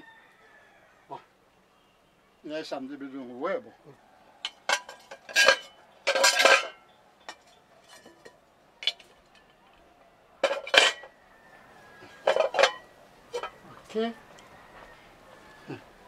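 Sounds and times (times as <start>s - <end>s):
cooking pots and lids clanking: 4.4s - 9.6s, 10.4s - 11.2s, 12.1s - 13.6s.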